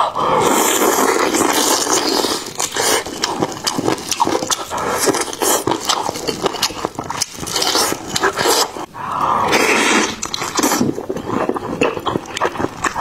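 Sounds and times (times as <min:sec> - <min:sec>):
wet chewing and lip-smacking: 0:00.9 - 0:08.9, 0:10.0 - 0:13.0.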